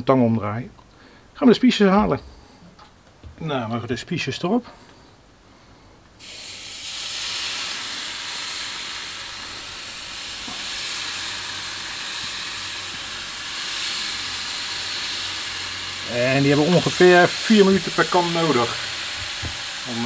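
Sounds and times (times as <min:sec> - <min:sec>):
meat sizzling on grill: 0:06.2 - 0:20.0.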